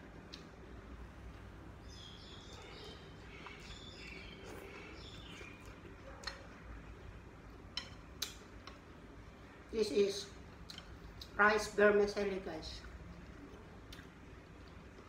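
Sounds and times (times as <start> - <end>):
faint bird chirping: 1.8 - 7.1.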